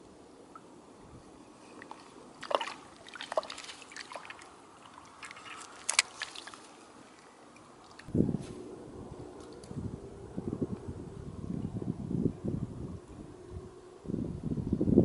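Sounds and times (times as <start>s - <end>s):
small waves lapping on shore: 1.5s - 8.1s.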